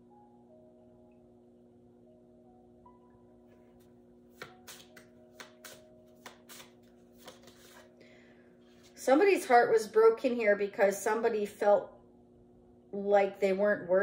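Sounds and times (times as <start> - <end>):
faint background music: 0.0 - 12.2, 12.8 - 14.0
cards snapping and slapping: 4.3 - 7.9.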